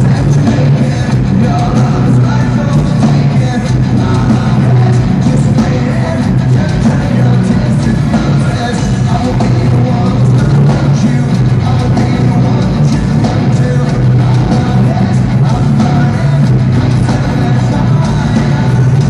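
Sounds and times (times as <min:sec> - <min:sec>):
heavy rock band playing live: 0:00.0 - 0:19.0.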